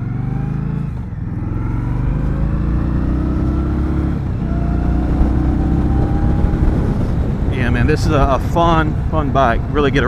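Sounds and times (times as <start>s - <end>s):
motorcycle engine accelerating: 0.0s - 10.0s.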